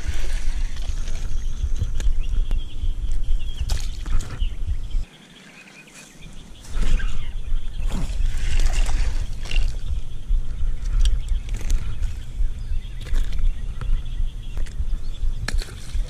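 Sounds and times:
wind buffeting microphone: 0.0 - 5.2, 6.1 - 16.0.

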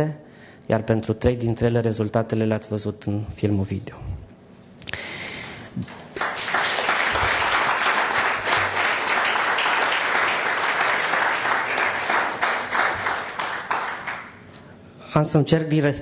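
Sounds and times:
audience applauding: 5.8 - 14.4.

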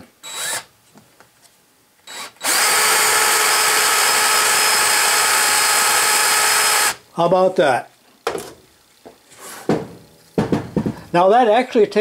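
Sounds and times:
power tool running: 0.2 - 0.7, 2.1 - 7.0
brief scrape: 9.3 - 9.7.

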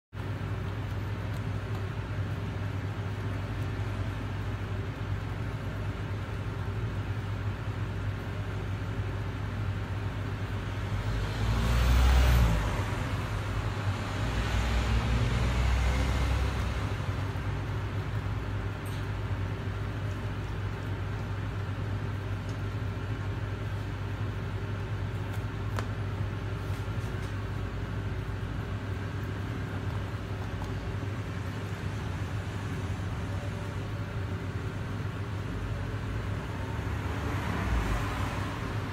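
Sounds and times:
low machine hum: 12.4 - 38.9.

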